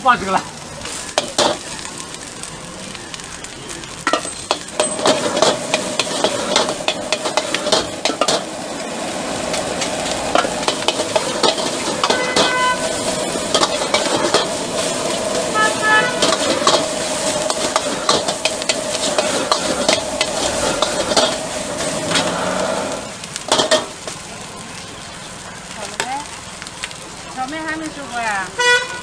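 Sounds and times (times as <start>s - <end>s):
rice sizzling in a wok: 0.0s - 29.0s
metal ladle scraping a wok: 4.1s - 8.5s, 9.5s - 23.8s.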